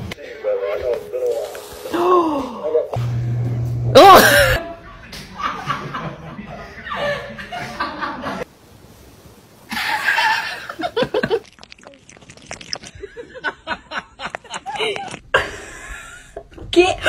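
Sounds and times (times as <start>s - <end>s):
person chuckling and laughing: 9.7s - 11.5s, 12.9s - 16.4s.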